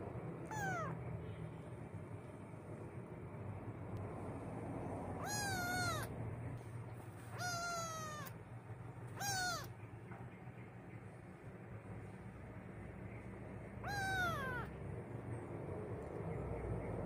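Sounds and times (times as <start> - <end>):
kitten meowing: 0.4 - 1.0, 5.2 - 6.1, 7.2 - 8.4, 9.1 - 9.8, 13.8 - 14.7.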